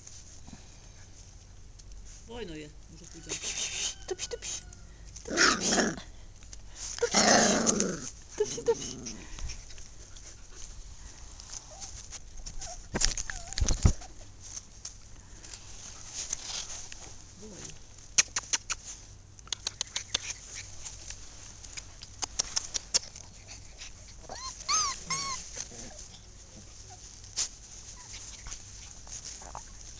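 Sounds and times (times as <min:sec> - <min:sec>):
puppies whimpering and yipping: 0:11.6 - 0:14.4, 0:23.0 - 0:29.9
puppy high-pitched whine: 0:11.7 - 0:14.2, 0:22.9 - 0:27.1.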